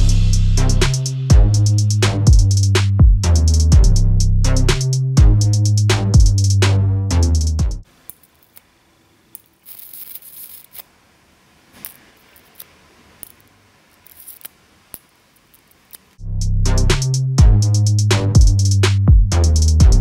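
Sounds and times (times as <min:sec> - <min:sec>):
electric arc snapping: 0:09.3 - 0:10.9, 0:11.8 - 0:16.2.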